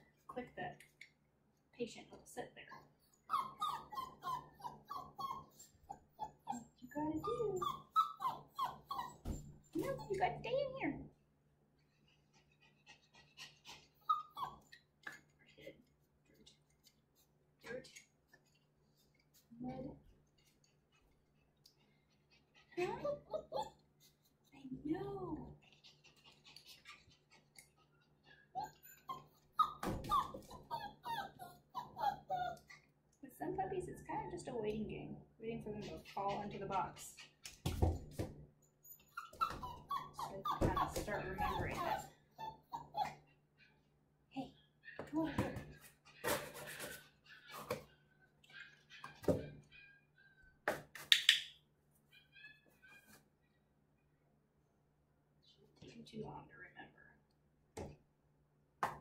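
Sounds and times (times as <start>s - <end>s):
puppy whining and yipping: 3.1s - 10.1s, 13.1s - 14.8s, 23.0s - 24.1s, 28.2s - 32.8s, 38.8s - 43.8s, 47.2s - 50.6s, 52.1s - 53.2s.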